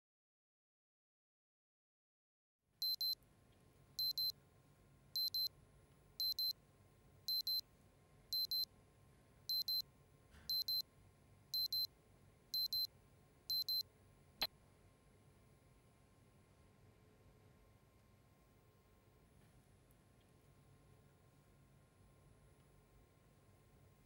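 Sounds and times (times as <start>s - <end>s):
alarm clock double beeps: 2.8s - 3.2s, 4.0s - 4.3s, 5.2s - 5.5s, 6.2s - 6.5s, 7.3s - 7.6s, 8.4s - 8.6s, 9.5s - 9.8s, 10.5s - 10.8s, 11.6s - 11.9s, 12.6s - 12.9s, 13.5s - 13.8s.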